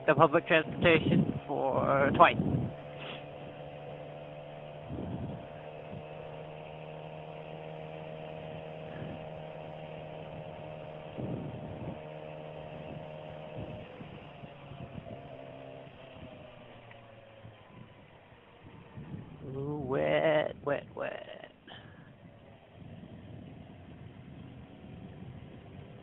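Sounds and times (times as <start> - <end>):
wind through helmet microphone: 0.0 - 3.9, 4.6 - 6.6, 8.0 - 15.4, 17.4 - 20.7, 21.9 - 26.0
motorcycle engine hum: 0.0 - 26.0.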